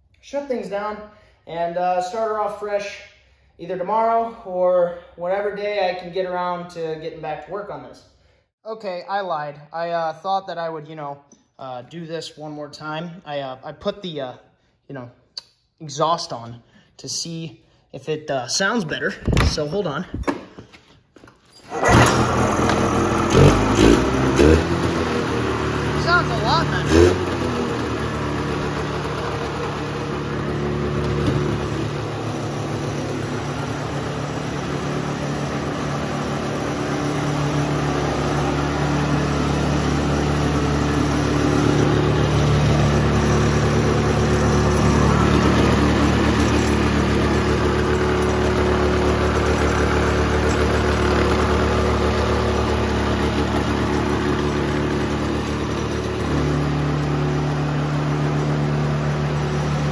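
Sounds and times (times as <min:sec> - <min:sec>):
two-stroke engine idling: 0:21.8 - 0:59.9.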